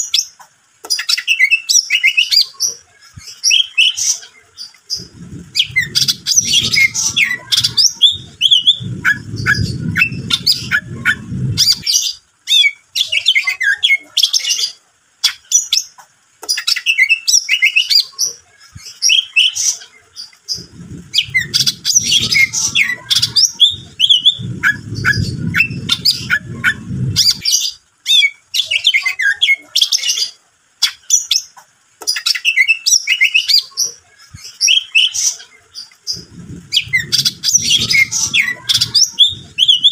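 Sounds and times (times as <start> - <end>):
bird singing: 3.2 - 18.2, 18.8 - 31.5, 34.4 - 39.9
low rumble: 4.9 - 12.0, 20.5 - 27.6, 36.1 - 39.9.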